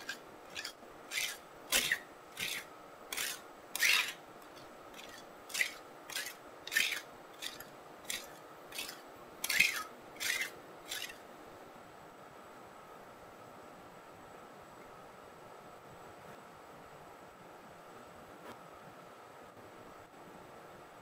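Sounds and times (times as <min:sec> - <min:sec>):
spatula scraping frozen ice cream: 0:00.0 - 0:11.2.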